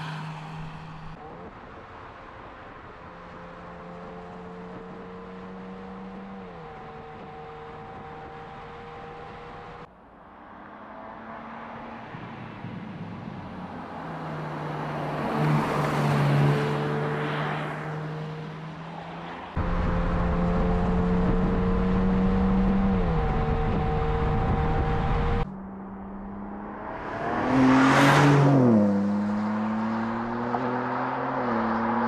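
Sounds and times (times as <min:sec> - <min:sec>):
car driving by: 0:10.3 - 0:32.0.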